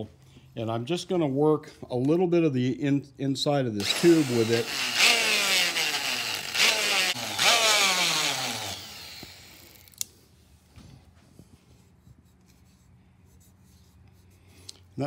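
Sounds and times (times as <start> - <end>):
rotary tool motor whine: 3.8 - 10.0.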